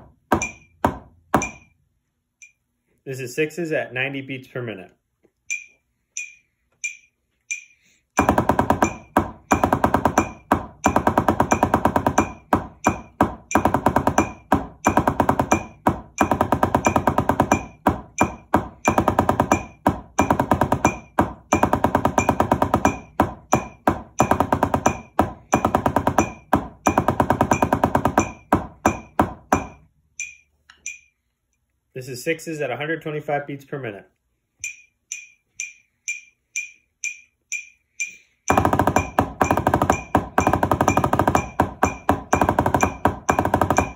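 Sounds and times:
drumsticks on practice pad: 5.4 - 10.5, 28.3 - 31.2, 34.6 - 43.0
metronome clicks: 5.5 - 7.8, 30.2 - 31.1, 34.6 - 38.3.

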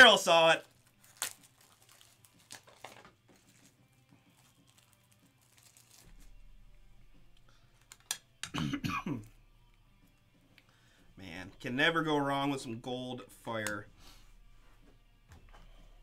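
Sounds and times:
foil card packs crinkling: 0.0 - 6.4.

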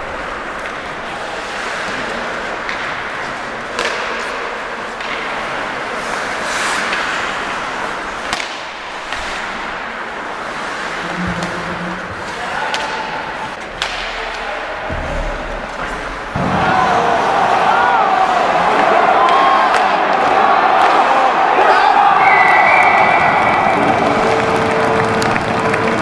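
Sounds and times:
hockey sticks cracking on puck: 0.0 - 26.0
skates scraping ice: 0.0 - 26.0.

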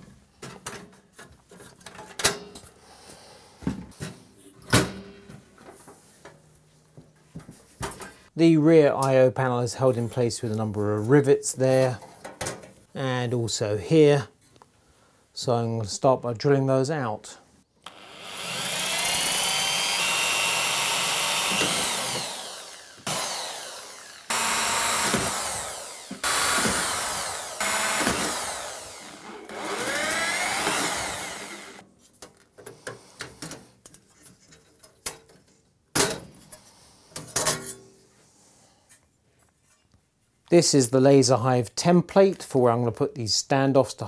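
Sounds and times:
electric drill whining: 17.8 - 31.8.

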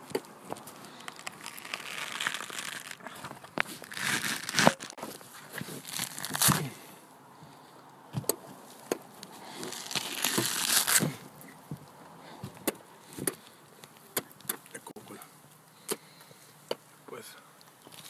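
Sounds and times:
coconut husk tearing: 0.0 - 6.8, 9.2 - 11.4.

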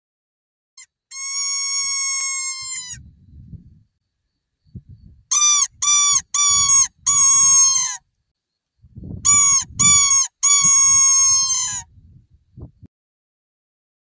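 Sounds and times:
fox call squealing: 1.1 - 3.0, 5.3 - 8.0, 9.3 - 11.9.

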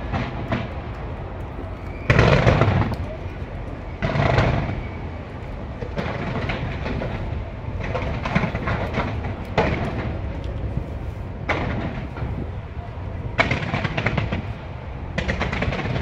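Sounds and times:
firework bang: 0.0 - 0.8, 2.0 - 3.2, 4.0 - 5.0, 5.8 - 10.4, 11.4 - 12.5, 13.3 - 16.0
fireworks crackling and popping: 0.0 - 16.0.

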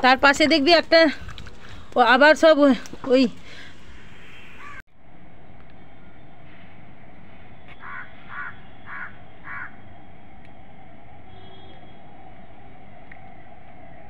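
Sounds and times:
steady background noise: 0.0 - 14.0
crow cawing: 4.3 - 4.8, 7.7 - 9.8.

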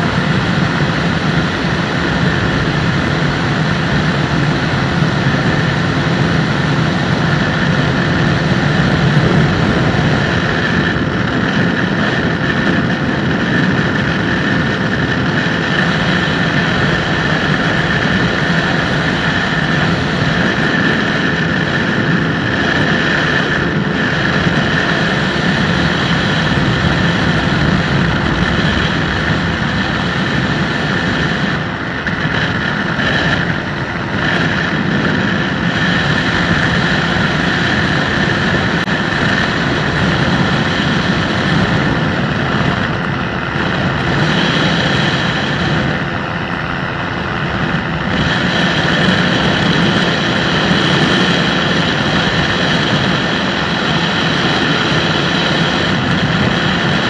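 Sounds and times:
microlight engine and propeller: 0.0 - 57.0
wind rushing past microphone: 0.0 - 57.0.

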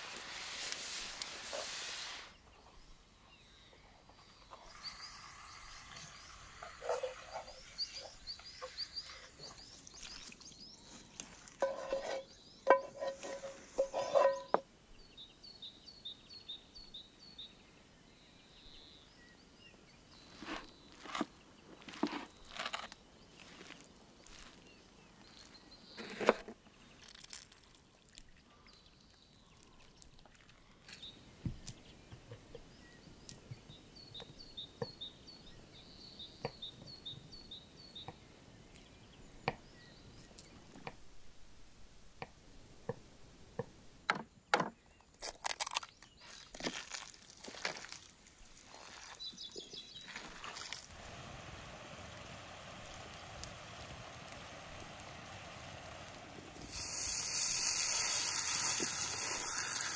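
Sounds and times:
bird chirping: 2.4 - 22.6, 28.0 - 40.7, 48.6 - 50.8.

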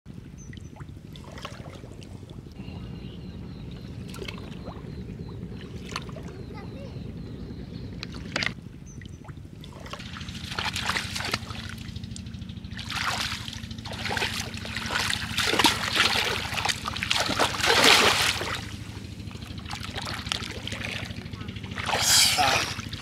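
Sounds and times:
steady low hum: 0.1 - 23.0
hands splashing in muddy water: 12.8 - 18.7, 21.7 - 22.9.

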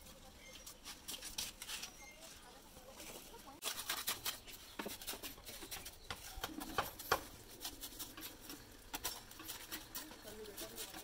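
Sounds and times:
trowel scraping mortar on brick: 3.1 - 11.0.

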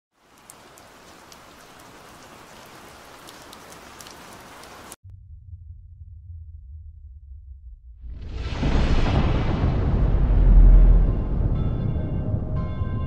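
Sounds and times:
rain drops splashing on hard surfaces: 0.1 - 5.0
deep low rumble: 5.0 - 13.0.

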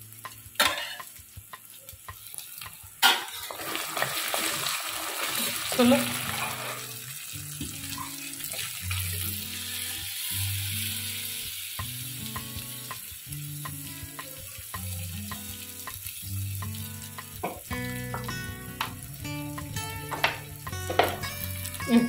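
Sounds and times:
food sizzling in a pan: 0.0 - 22.0
background music with bass line: 10.3 - 22.0.

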